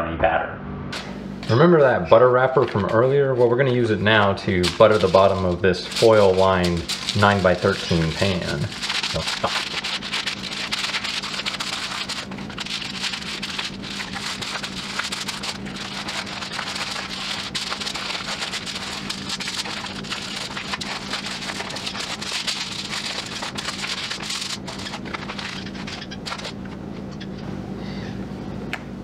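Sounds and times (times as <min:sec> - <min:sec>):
aluminium foil crinkling: 0:02.4 - 0:26.8.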